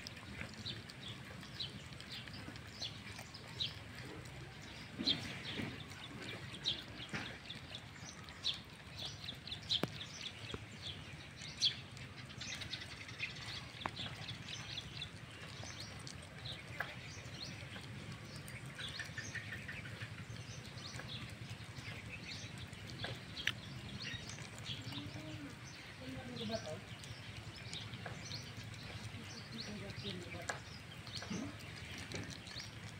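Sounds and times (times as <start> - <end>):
birds chirping: 0.0 - 32.9
puppy chewing and smacking: 0.0 - 32.9.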